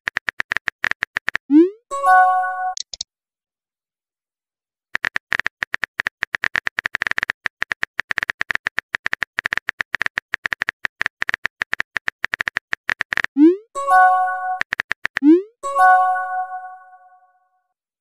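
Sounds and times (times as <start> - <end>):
keyboard key clicks: 2.8 - 3.0.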